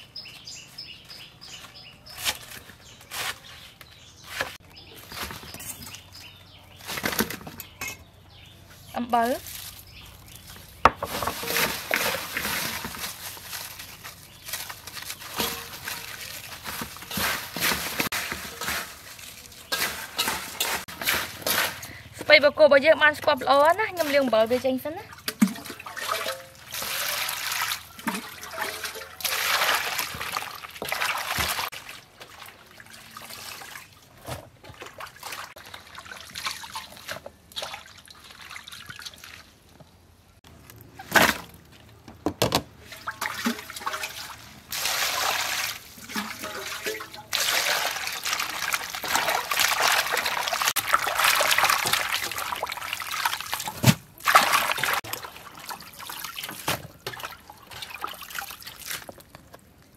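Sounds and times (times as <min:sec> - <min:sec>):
hands swishing leaves in water: 0:09.1 - 0:21.9, 0:23.6 - 0:39.5, 0:42.8 - 0:59.3
water pouring into steel bowl: 0:43.0 - 0:53.6.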